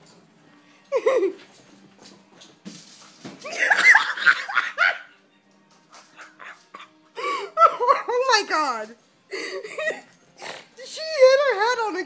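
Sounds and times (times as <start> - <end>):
dog scuffling across floor: 1.4 - 3.6
people shrieking laughter: 3.5 - 5.1.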